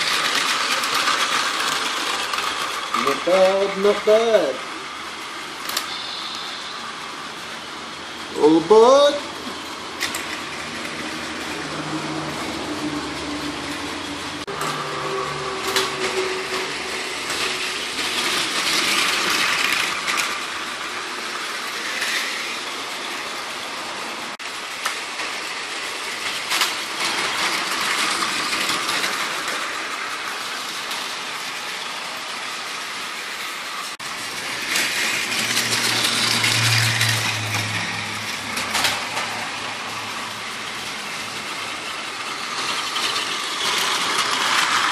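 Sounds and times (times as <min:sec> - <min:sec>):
toy train clicks: 0:00.0 - 0:04.2, 0:05.6 - 0:06.5, 0:24.8 - 0:25.4, 0:26.2 - 0:31.1, 0:34.3 - 0:39.4, 0:41.8 - 0:44.9
toy train whirring: 0:00.0 - 0:44.9.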